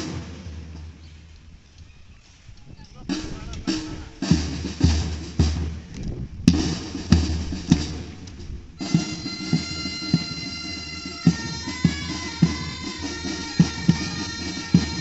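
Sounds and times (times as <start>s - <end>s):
marching drums beating: 0.0s - 1.4s, 2.9s - 15.0s
bagpipes playing: 8.8s - 15.0s.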